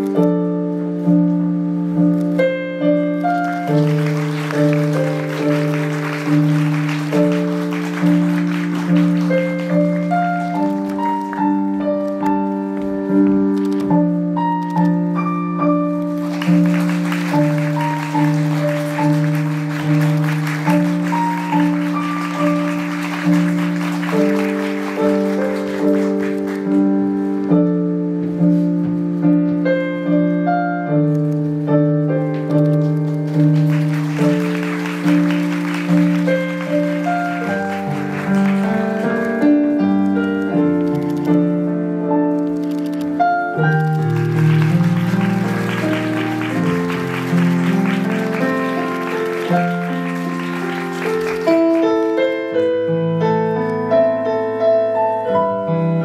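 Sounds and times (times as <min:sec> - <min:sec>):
piano playing: 0:00.0 - 0:56.0
audience applause: 0:03.2 - 0:11.5, 0:16.1 - 0:26.8, 0:32.7 - 0:39.4, 0:43.8 - 0:52.3.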